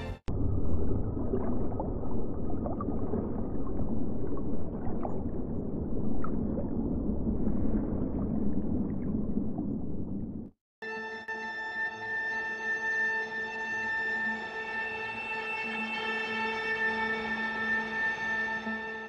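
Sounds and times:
underwater rush of water: 0:00.4 - 0:10.5.

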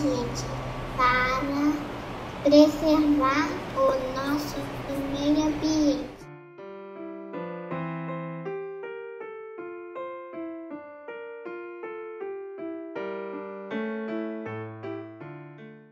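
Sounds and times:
solo piano music: 0:04.0 - 0:15.9.

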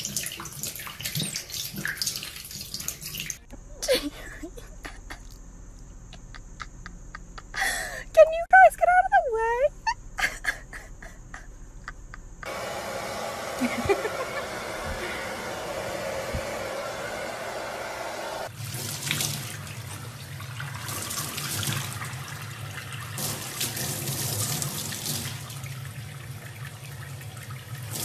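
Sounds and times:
steady whooshing noise: 0:12.7 - 0:18.5.

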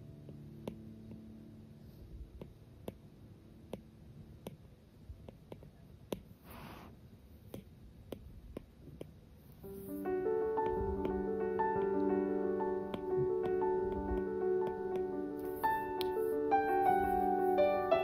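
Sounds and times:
soft rustle: 0:06.3 - 0:07.1.

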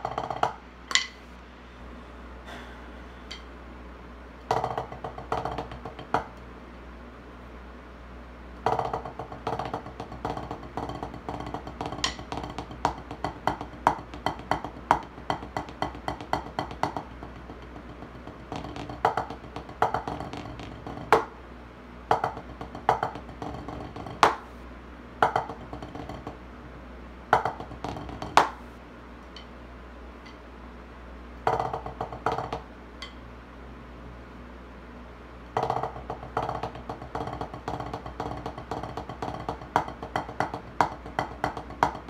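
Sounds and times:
drumsticks striking practice pad: 0:00.0 - 0:01.2, 0:02.4 - 0:03.5, 0:04.5 - 0:06.4, 0:08.6 - 0:21.4, 0:22.1 - 0:24.6, 0:25.2 - 0:26.4, 0:27.3 - 0:29.5, 0:31.4 - 0:33.2, 0:35.5 - 0:42.0.

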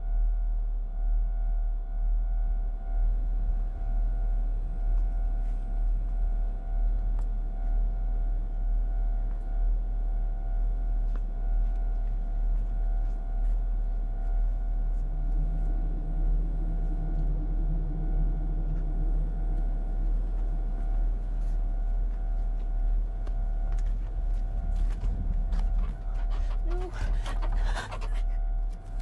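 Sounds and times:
low throbbing rumble drone: 0:00.0 - 0:29.0
higher hum: 0:15.1 - 0:29.0.

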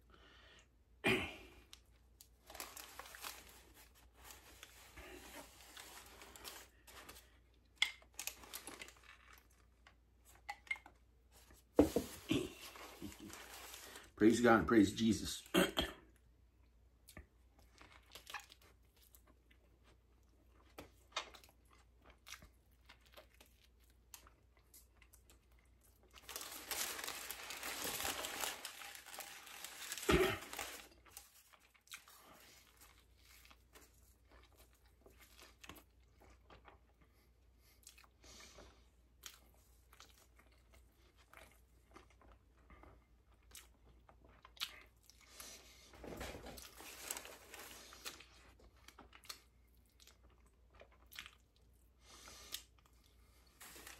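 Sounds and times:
food wrapper crinkling: 0:02.2 - 0:11.0, 0:11.8 - 0:14.2, 0:22.8 - 0:36.6, 0:46.2 - 0:49.5, 0:53.4 - 0:53.9
soft chewing and mouth clicks: 0:16.1 - 0:26.3, 0:30.9 - 0:45.9, 0:46.5 - 0:53.9.

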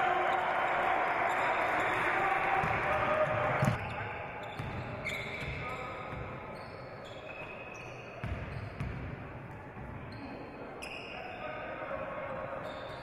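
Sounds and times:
sneakers squeaking on court: 0:03.6 - 0:09.2.

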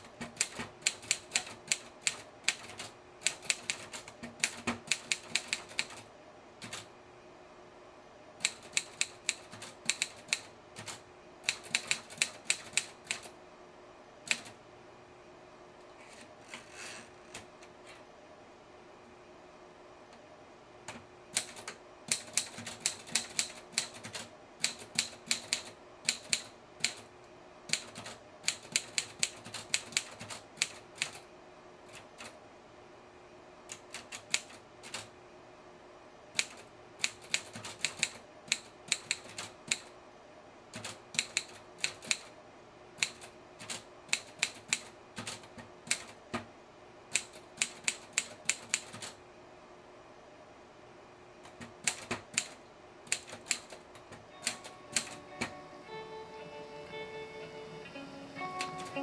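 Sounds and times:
typewriter keystrokes: 0:00.1 - 0:06.0, 0:06.6 - 0:06.9, 0:08.4 - 0:13.3, 0:14.3 - 0:14.6, 0:21.3 - 0:27.1, 0:27.7 - 0:31.2, 0:31.9 - 0:32.4, 0:33.7 - 0:35.1, 0:36.4 - 0:39.9, 0:40.7 - 0:42.3, 0:43.0 - 0:46.2, 0:47.1 - 0:49.2, 0:51.5 - 0:55.6, 0:58.6 - 0:59.0.

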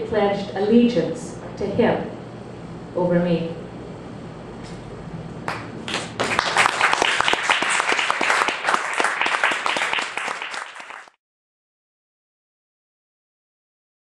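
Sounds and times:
audience applauding: 0:05.5 - 0:11.2.

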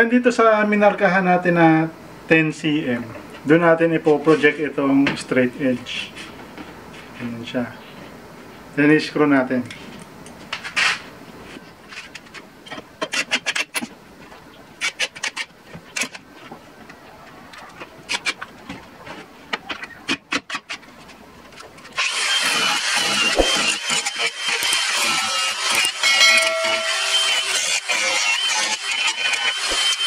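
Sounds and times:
impact driver rapid clicking: 0:22.0 - 0:26.0
angle grinder high whine: 0:22.0 - 0:30.0.

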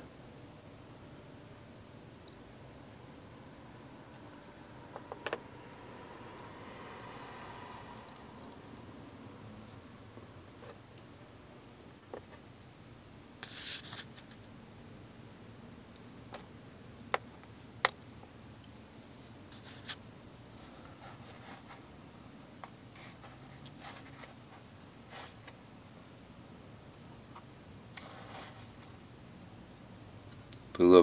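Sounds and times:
faint scratching: 0:13.4 - 0:14.5, 0:18.9 - 0:21.9, 0:22.9 - 0:25.6, 0:27.2 - 0:29.0
scraping rustle: 0:19.0 - 0:21.9, 0:28.0 - 0:29.0.

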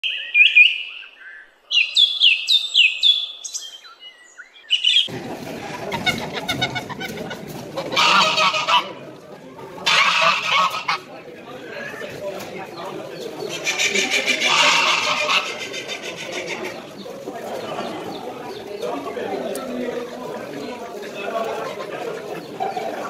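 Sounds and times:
small birds chirping: 0:00.0 - 0:05.1, 0:12.0 - 0:20.8
poultry market background: 0:04.9 - 0:23.0.

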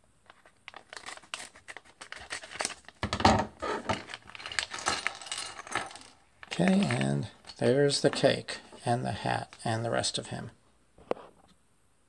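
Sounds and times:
plastic foil crinkling: 0:00.3 - 0:03.0.

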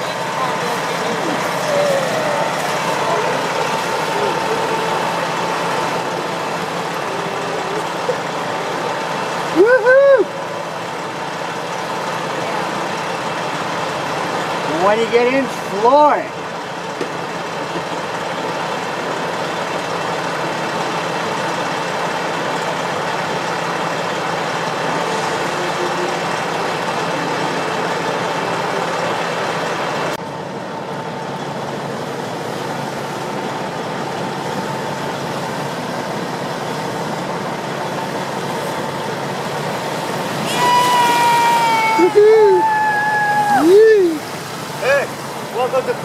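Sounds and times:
constant high whine: 0:00.0 - 0:46.0
heavy vehicles idling: 0:00.0 - 0:46.0.

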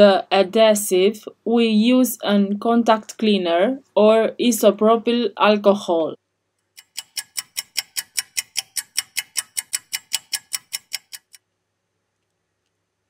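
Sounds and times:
clock ticking: 0:06.7 - 0:11.4.

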